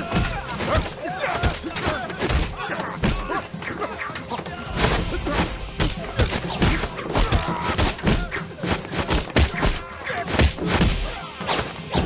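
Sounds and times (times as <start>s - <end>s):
punches and kicks landing: 4.8s - 11.2s
grunts and cries: 6.8s - 8.4s.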